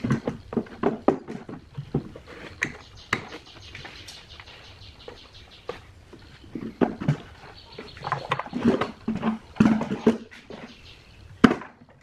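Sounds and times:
plastic shell knocking and scraping: 0:00.0 - 0:03.4, 0:06.5 - 0:10.7.

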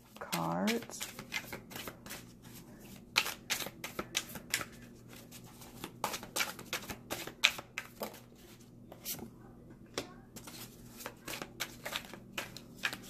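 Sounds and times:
cards being shuffled: 0:00.3 - 0:08.3, 0:10.4 - 0:13.0.

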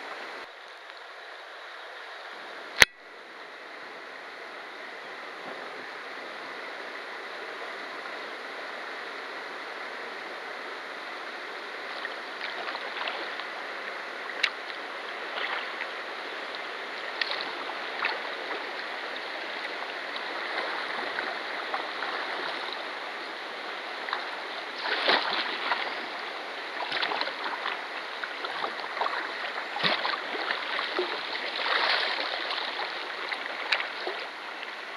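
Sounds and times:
water splashing around kayak: 0:05.3 - 0:34.9
river rapids rushing over rocks: 0:05.9 - 0:34.9.

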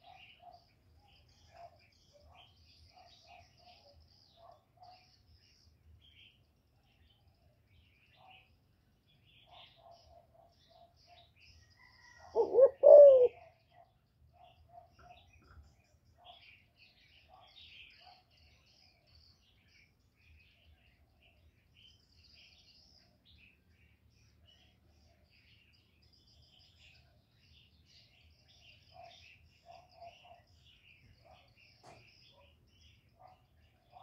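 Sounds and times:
faint high-pitched chirping: 0:00.0 - 0:34.0
dove cooing: 0:12.2 - 0:13.5.

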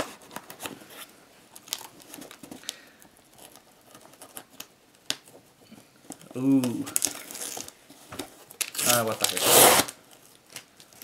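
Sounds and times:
box cutter slitting packing tape: 0:08.8 - 0:10.0.

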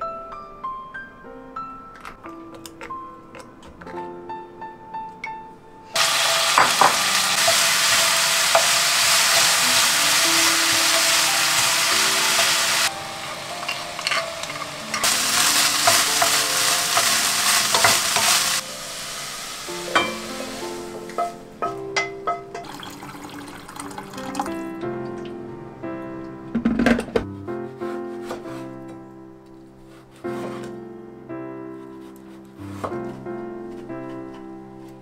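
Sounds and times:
soft piano music: 0:00.0 - 0:35.0
food sizzling in a pan: 0:06.0 - 0:24.6.

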